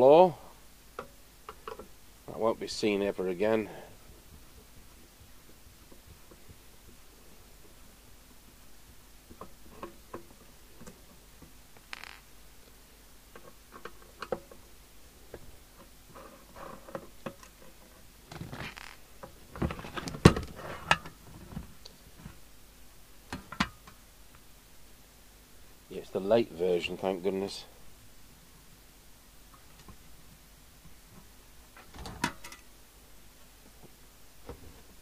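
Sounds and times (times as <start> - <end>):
small clicks and scrapes: 0.9 - 2.0, 9.3 - 14.7, 15.3 - 22.4.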